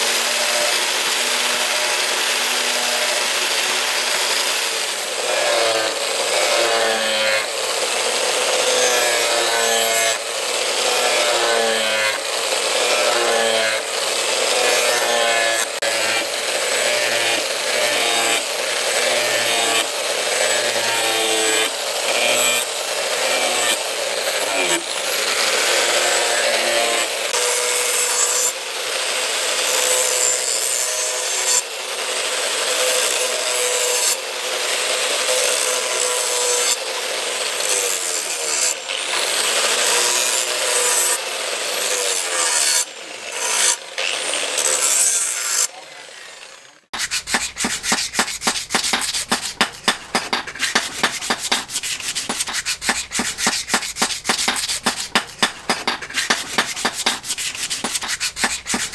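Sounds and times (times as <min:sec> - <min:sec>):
angle grinder grinding steel: 0:00.0 - 0:58.9
quick rubbing strokes by hand: 0:47.0 - 0:58.9.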